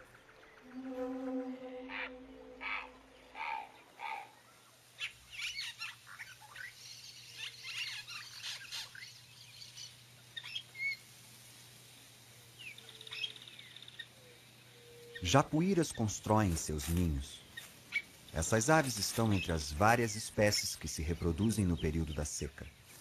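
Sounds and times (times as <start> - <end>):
birds whistling and chattering: 0.0 - 11.1, 12.6 - 16.1, 16.7 - 23.0.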